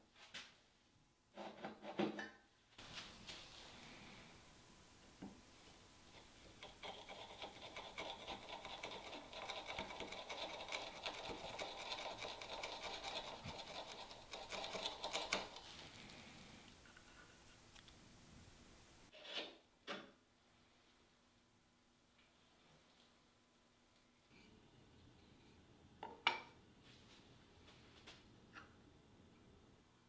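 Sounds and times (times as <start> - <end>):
chisel scratching wood: 6.2 - 15.6.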